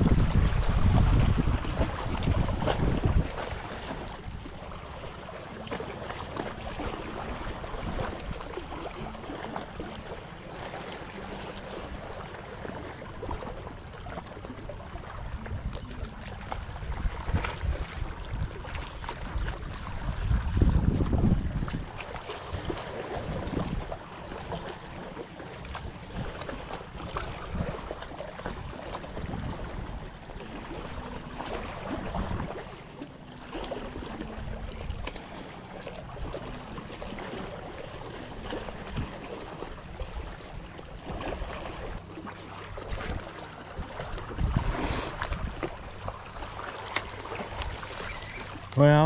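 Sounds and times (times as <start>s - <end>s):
wind buffeting microphone: 0.0s - 5.3s, 14.8s - 24.0s, 25.7s - 32.7s, 42.8s - 46.6s
sea waves lapping against rocks: 0.0s - 49.0s.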